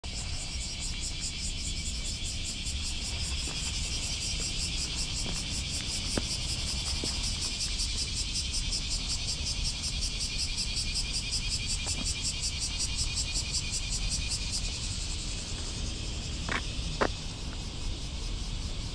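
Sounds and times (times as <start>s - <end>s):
cicadas buzzing: 0.0s - 18.9s.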